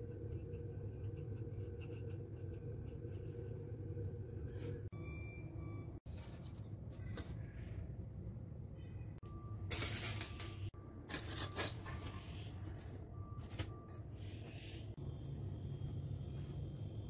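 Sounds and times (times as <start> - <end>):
steady low hum: 0.0 - 6.9, 12.1 - 17.0.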